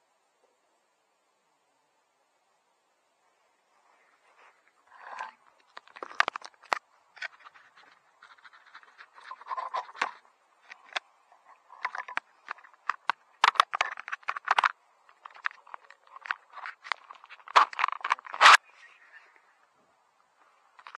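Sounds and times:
hand handling drone camera: 0:04.3 - 0:19.4.

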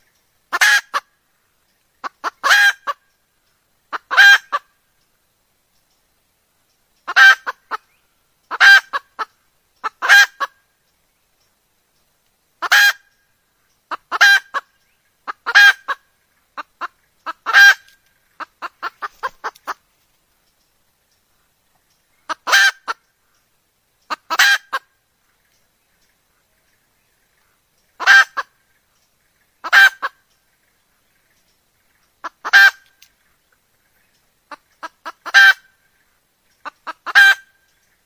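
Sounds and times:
hen cackling calls: 0:00.5 - 0:01.1, 0:02.0 - 0:03.0, 0:03.9 - 0:04.8, 0:07.0 - 0:07.9, 0:08.5 - 0:10.6, 0:12.6 - 0:13.1, 0:13.9 - 0:19.8, 0:22.2 - 0:23.0, 0:24.1 - 0:25.0, 0:28.0 - 0:28.6, 0:29.6 - 0:30.2, 0:32.2 - 0:33.0, 0:34.4 - 0:35.9, 0:36.6 - 0:37.6.

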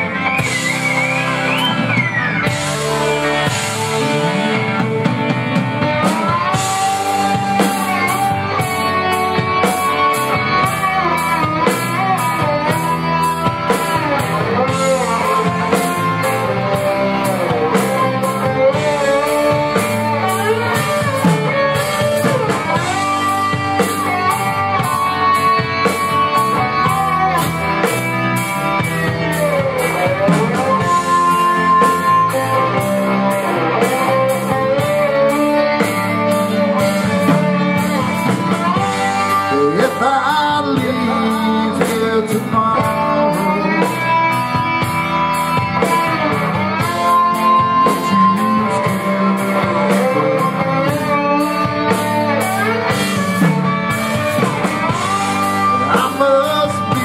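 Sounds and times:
drum kit: 0:00.0 - 0:57.0
electric guitars: 0:00.0 - 0:57.0
man singing: 0:34.0 - 0:44.6, 0:45.8 - 0:53.3, 0:54.0 - 0:57.0.

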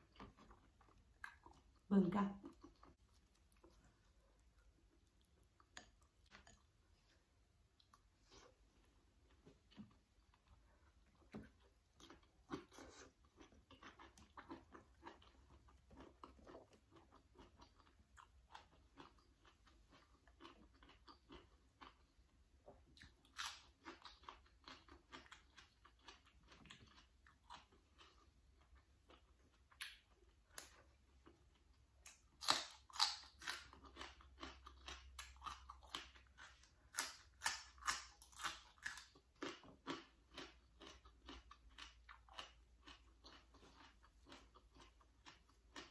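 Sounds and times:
person chewing: 0:00.0 - 0:45.9
crunching raw vegetables: 0:29.1 - 0:45.9.

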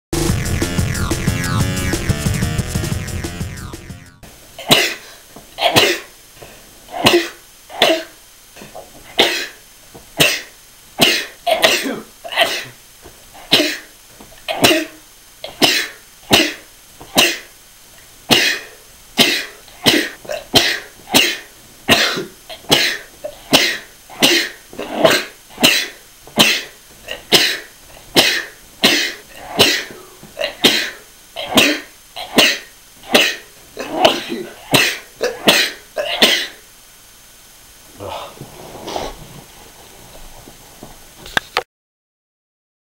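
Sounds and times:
person sneezing: 0:04.6 - 0:06.2, 0:06.9 - 0:09.6, 0:10.2 - 0:12.8, 0:13.4 - 0:13.9, 0:14.5 - 0:17.5, 0:18.3 - 0:36.6, 0:38.0 - 0:39.2.

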